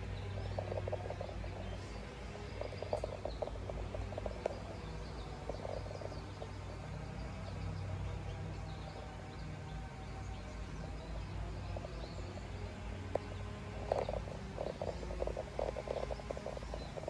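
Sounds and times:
faint bird chirps: 0.0s - 9.1s, 13.7s - 17.0s
steady low hum: 0.0s - 17.0s.

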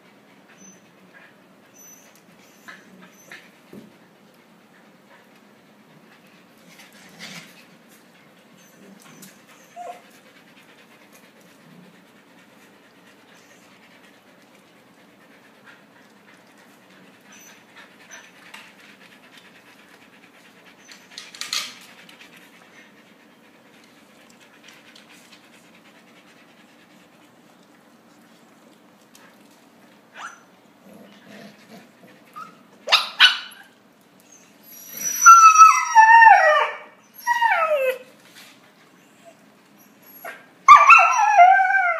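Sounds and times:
dog panting: 0.0s - 30.0s.

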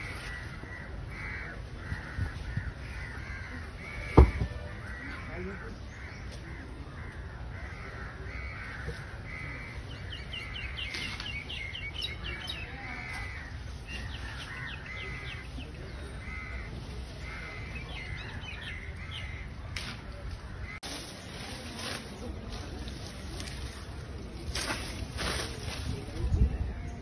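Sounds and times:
crows cawing: 0.0s - 10.9s, 12.4s - 19.7s
small birds chirping: 9.2s - 25.0s.

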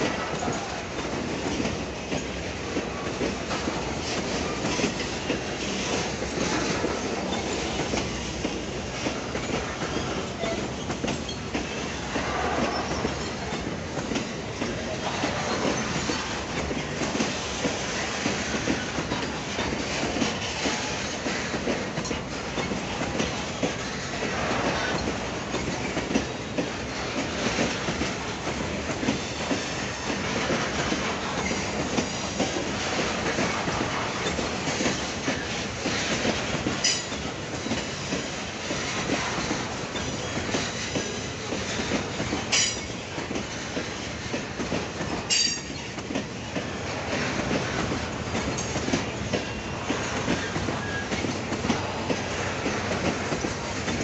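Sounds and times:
train wheels clicking over rail joints: 0.0s - 54.0s.

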